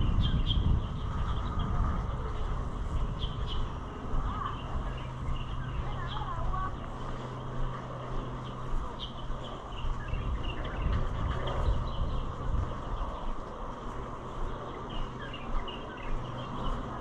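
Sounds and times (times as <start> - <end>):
low uneven rumble: 0.0 - 17.0
small birds chirping: 0.0 - 17.0
steady low hum: 0.0 - 17.0.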